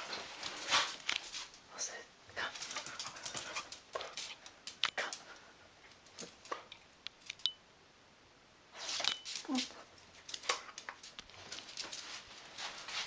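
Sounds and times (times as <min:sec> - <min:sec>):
cloth rustling and scuffling: 0:11.3 - 0:13.0.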